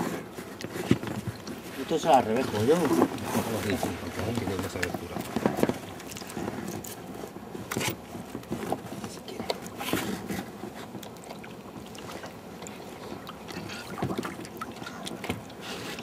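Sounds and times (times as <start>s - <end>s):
water splashing: 1.3s - 6.8s, 11.0s - 16.0s.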